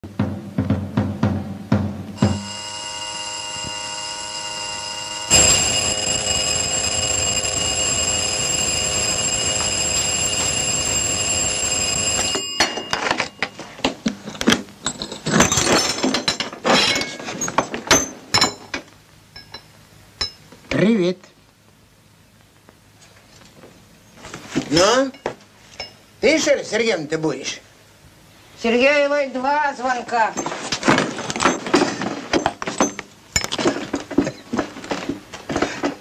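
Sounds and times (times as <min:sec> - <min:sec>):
electric doorbell ringing: 0:02.2 - 0:13.6.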